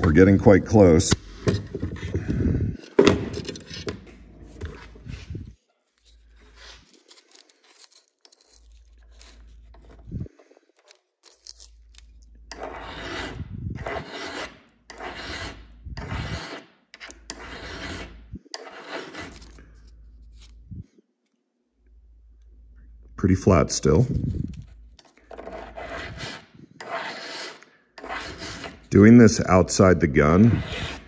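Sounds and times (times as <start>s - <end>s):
file scraping metal: 12.5s - 19.6s, 25.3s - 29.0s, 30.3s - 31.0s.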